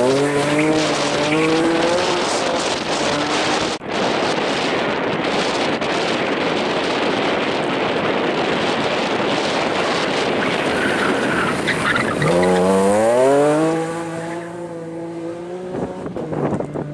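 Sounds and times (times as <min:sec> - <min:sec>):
car engine revving: 0:00.0 - 0:03.8, 0:09.8 - 0:16.9.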